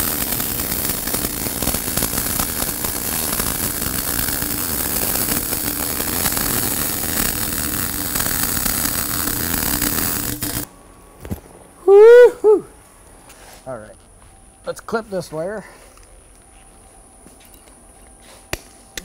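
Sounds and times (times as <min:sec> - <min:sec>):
welding arc crackling: 0:00.0 - 0:10.7.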